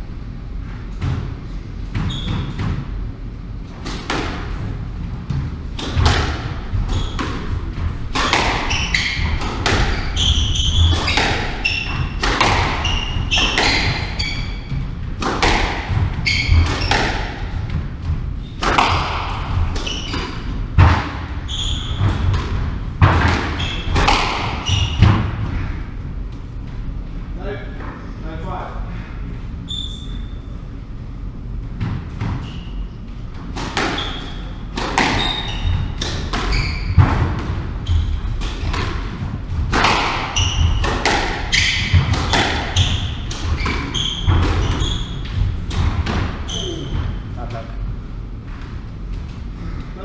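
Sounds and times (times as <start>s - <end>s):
shoes squeaking on wooden floor: 2.0s - 2.6s, 8.2s - 15.0s, 16.1s - 17.4s, 19.6s - 20.5s, 21.5s - 22.4s, 34.0s - 38.4s, 39.9s - 45.5s, 46.4s - 47.2s
squash ball cracking off rackets: 5.8s - 14.2s, 15.2s - 17.6s, 18.6s - 21.3s, 22.0s - 25.4s, 33.4s - 37.7s, 38.3s - 44.8s.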